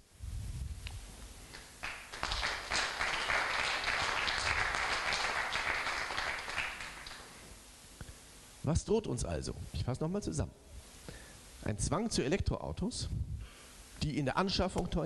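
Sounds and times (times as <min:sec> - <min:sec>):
audience applauding: 0:01.6 - 0:07.3.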